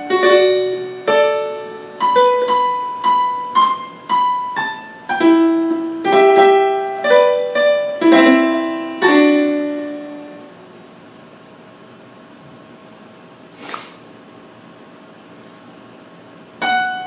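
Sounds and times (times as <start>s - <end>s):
piano notes and chords: 0.0s - 10.6s, 16.6s - 17.0s.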